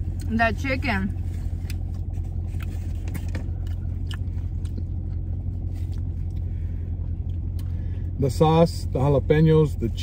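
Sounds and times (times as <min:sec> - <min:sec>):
low hum inside a car: 0:00.0 - 0:10.0
chewing and biting sandwich: 0:01.4 - 0:07.7.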